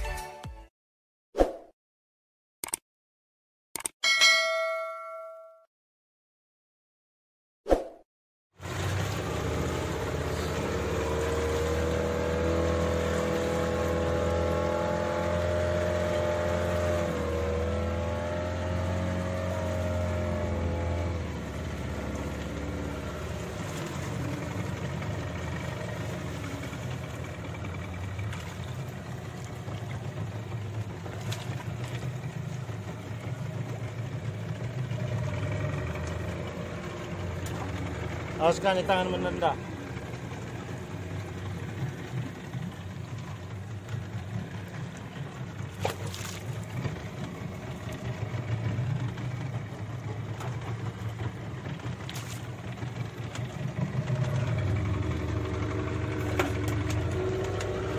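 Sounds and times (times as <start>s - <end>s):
boat engine running: 8.6s - 57.9s.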